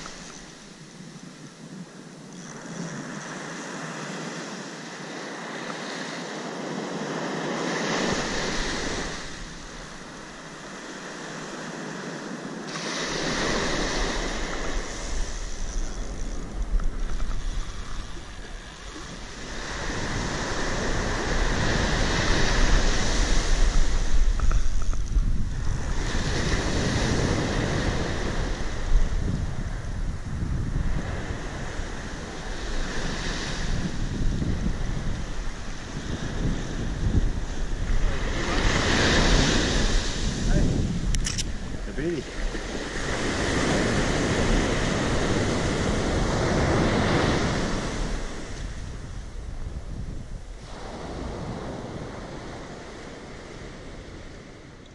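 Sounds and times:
surf breaking on a beach: 0:00.0 - 0:54.9
wind buffeting microphone: 0:12.5 - 0:54.9.

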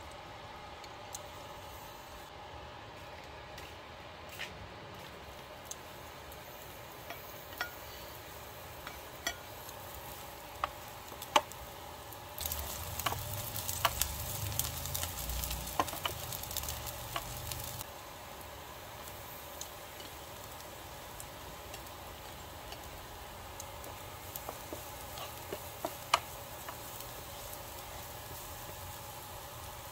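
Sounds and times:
green onions sizzling in oil: 0:05.0 - 0:29.9
spatula tapping and scraping: 0:07.0 - 0:08.1, 0:08.8 - 0:09.6, 0:12.8 - 0:14.1, 0:15.4 - 0:17.6, 0:23.8 - 0:27.5.

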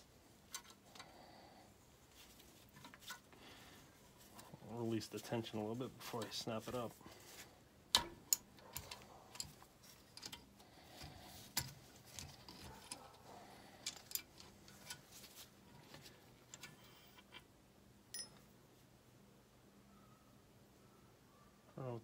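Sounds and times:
faint metallic clicks and clinks: 0:18.1 - 0:18.5
ringing metal click: 0:18.1 - 0:18.5.

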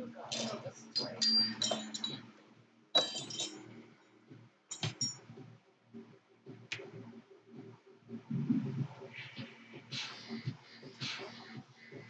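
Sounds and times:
metal tools clinking: 0:00.3 - 0:02.3, 0:03.0 - 0:03.7, 0:04.7 - 0:05.2.

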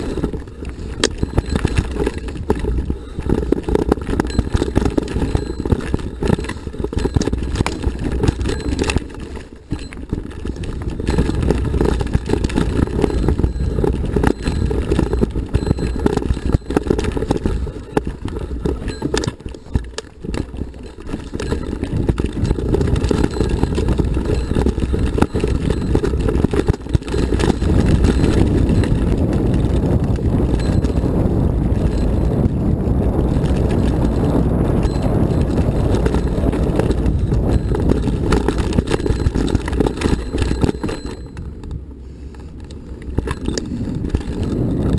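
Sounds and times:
bike rattling over stones: 0:00.0 - 0:44.9
bike tyres rumbling on rocky trail: 0:00.0 - 0:44.9.

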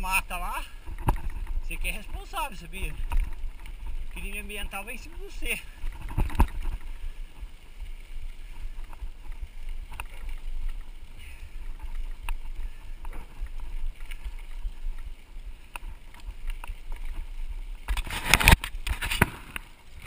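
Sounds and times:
wind and tyre rumble: 0:00.0 - 0:20.0
bike clicks and knocks: 0:00.9 - 0:01.6.

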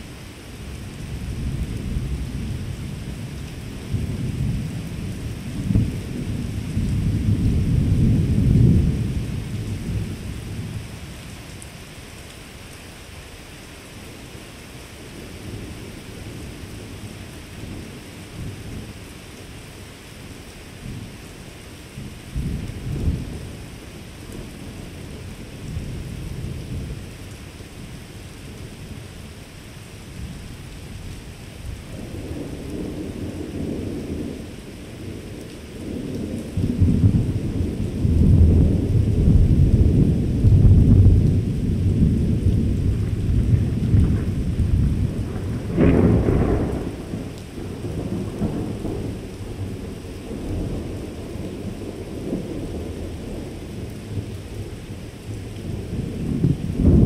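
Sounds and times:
thunder rumbling: 0:01.0 - 0:10.8, 0:31.7 - 0:57.0
sharp thunder clap: 0:41.9 - 0:49.1, 0:56.2 - 0:57.0.

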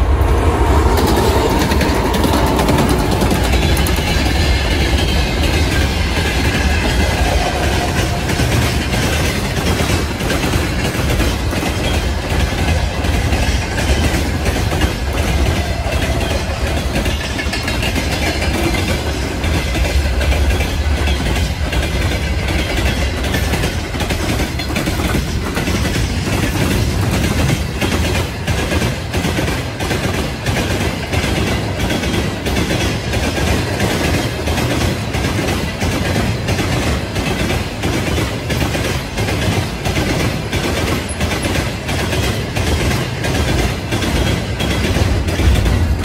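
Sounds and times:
freight wagons rumbling past: 0:00.0 - 0:29.1, 0:40.2 - 0:46.0
wheels clacking over rail joints: 0:00.9 - 0:46.0.

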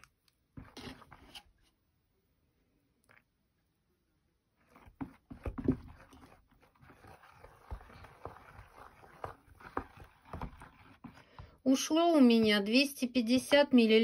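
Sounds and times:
batter squelching and sloshing: 0:04.4 - 0:12.6.

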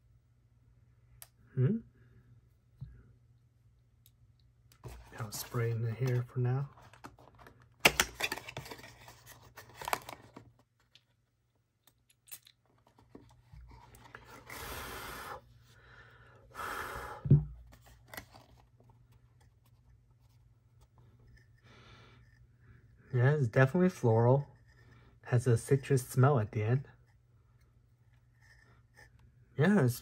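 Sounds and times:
object set down thump: 0:17.3 - 0:17.7.

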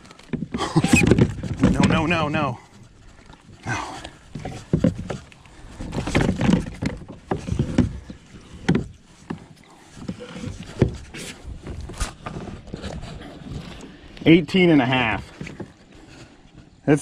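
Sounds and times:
knocks and bumps in kayak: 0:00.0 - 0:16.9.

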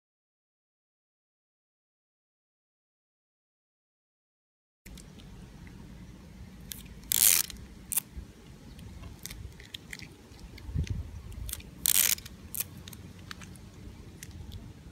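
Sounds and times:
tape ripping off roll: 0:07.0 - 0:08.0, 0:11.5 - 0:13.5.

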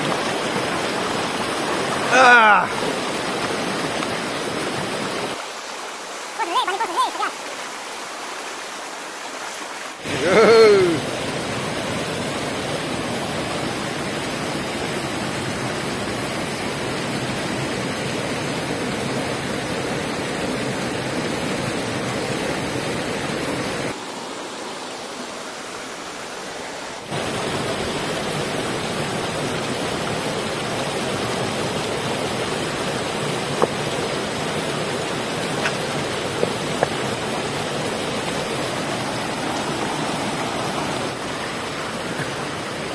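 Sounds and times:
stream rushing over stones: 0:00.0 - 0:42.9
person exclaiming: 0:02.0 - 0:02.8, 0:06.4 - 0:07.4, 0:10.1 - 0:11.1.

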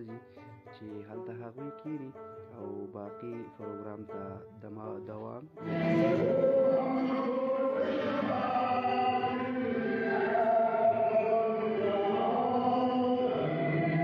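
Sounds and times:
voices chanting slow melody: 0:05.6 - 0:14.0.

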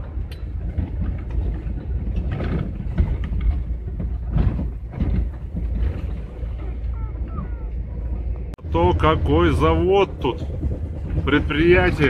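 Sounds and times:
van rolling over potholed road: 0:00.0 - 0:12.0
body knocks and rattles: 0:00.6 - 0:07.0.

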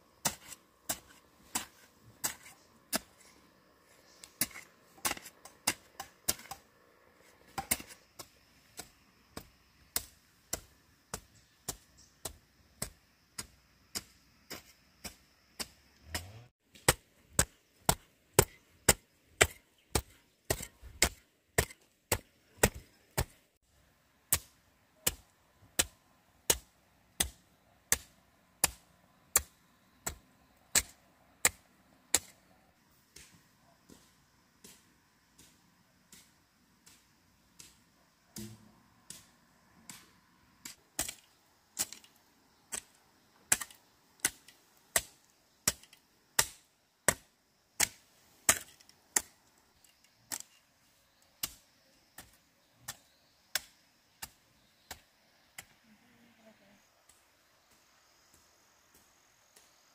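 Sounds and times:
chopping strikes: 0:07.5 - 0:23.4.

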